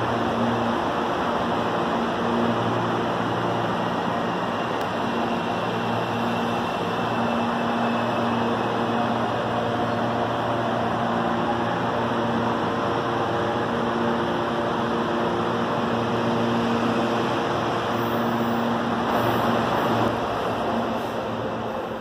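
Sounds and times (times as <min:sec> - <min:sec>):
electric train hum and rumble: 0:00.0 - 0:22.0.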